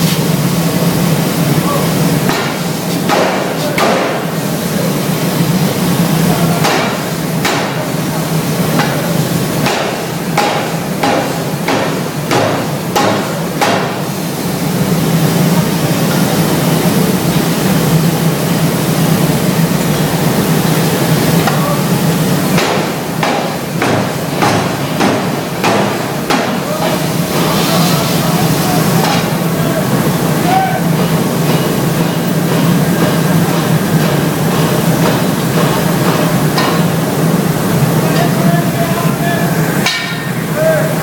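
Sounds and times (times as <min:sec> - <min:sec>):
steady machine hum: 0:00.0 - 0:41.0
forging hammer blows on steel: 0:08.7 - 0:14.1, 0:39.8 - 0:41.0.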